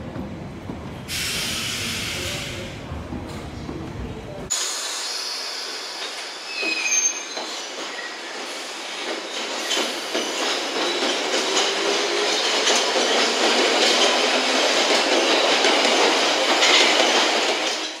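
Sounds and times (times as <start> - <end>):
train wheels clacking over rails: 5.8 - 18.0.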